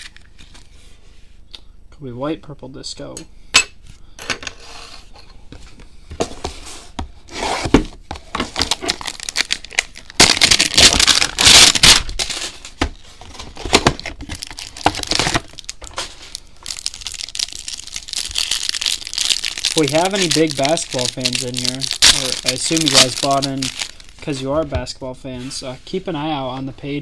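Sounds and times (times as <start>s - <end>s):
wrapper crinkling and rustling: 8.3s - 24.5s
wrapper tearing: 8.5s - 12.7s, 13.3s - 24.3s.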